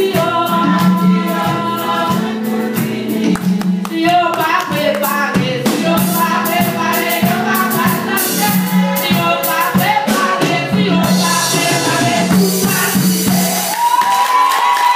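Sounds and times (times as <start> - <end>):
rhythmic percussion: 0.0 - 14.9
woman singing gospel song: 0.0 - 14.9
voices joining in singing: 5.8 - 14.9.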